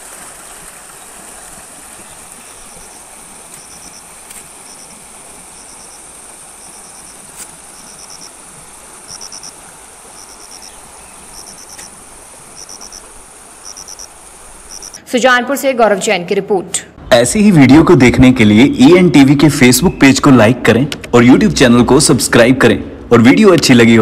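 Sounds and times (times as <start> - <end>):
background hiss: 0.0 - 24.0
insects chirping: 2.0 - 15.0
steady high buzz: 2.4 - 15.0.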